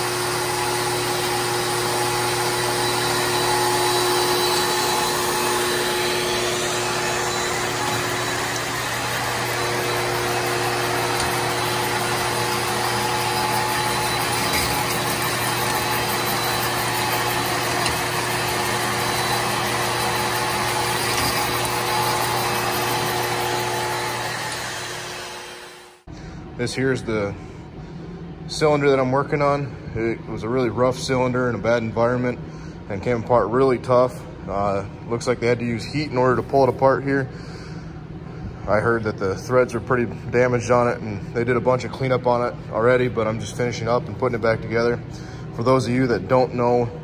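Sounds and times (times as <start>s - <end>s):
cylinder hone machine hum: 0.0s - 47.0s.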